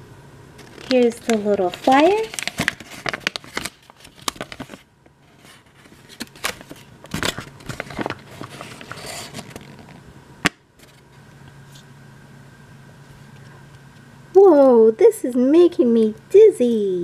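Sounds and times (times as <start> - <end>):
paper crinkling and rustling: 0.6 - 10.0.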